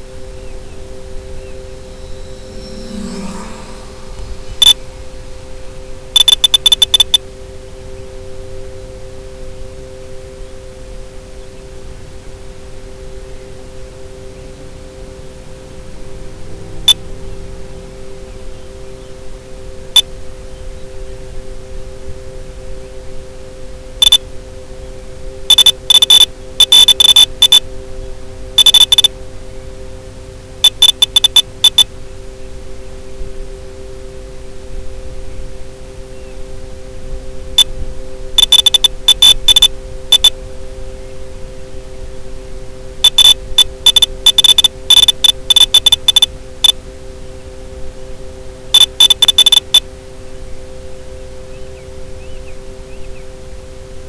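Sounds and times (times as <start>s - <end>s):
electronic hum in two pitches: 0.0s - 54.0s
low hiss: 0.0s - 54.0s
sharp high beeps: 2.0s - 4.8s, 6.2s - 7.2s, 25.5s - 27.6s, 28.6s - 29.1s, 30.6s - 31.9s, 38.4s - 40.3s, 43.0s - 46.8s, 48.8s - 49.8s.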